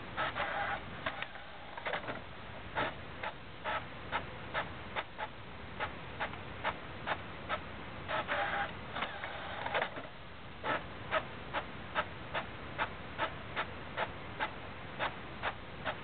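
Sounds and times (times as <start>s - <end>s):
printer printing and clicking: 0.2s - 16.0s.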